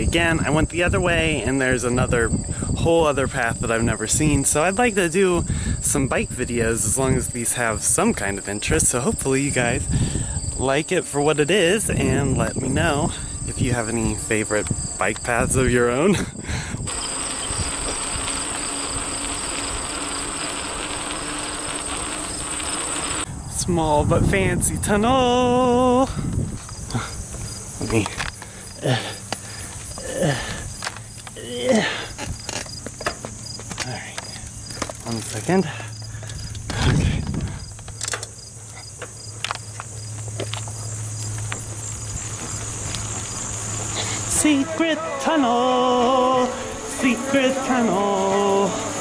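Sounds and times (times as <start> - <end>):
bicycle tyres rolling on concrete: 0.0 - 23.6, 24.4 - 49.0
wind noise: 0.0 - 38.2
insects chirping: 0.0 - 49.0
steady low hum: 0.0 - 49.0.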